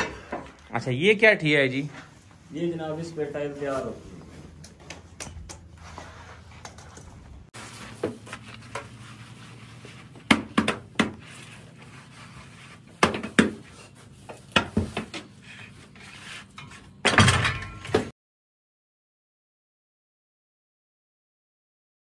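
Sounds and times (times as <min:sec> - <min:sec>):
scraping on tile mould: 0:11.0 - 0:17.0.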